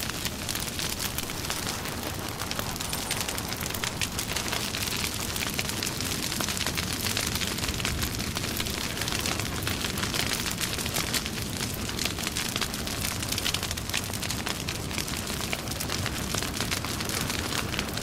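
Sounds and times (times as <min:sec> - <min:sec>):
hiss of flame: 0:00.0 - 0:10.8
wood fire crackling: 0:00.0 - 0:18.0.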